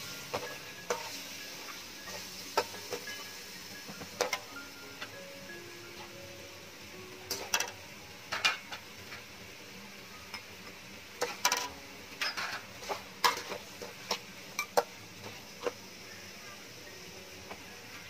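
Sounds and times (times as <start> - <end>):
ladle scraping and clinking wok: 0.0 - 3.6, 7.3 - 9.3, 11.2 - 15.8.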